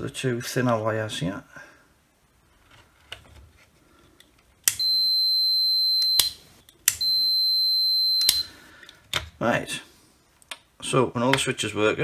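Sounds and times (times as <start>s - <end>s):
multimeter continuity beep: 4.7s - 8.6s
probe clicks: 6.0s - 7.2s, 8.2s - 8.5s.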